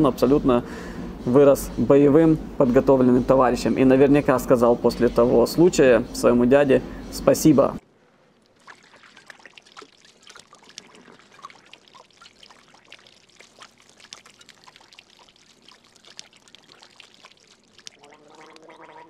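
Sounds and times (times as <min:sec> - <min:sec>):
water trickling and splattering: 0:08.2 - 0:19.0.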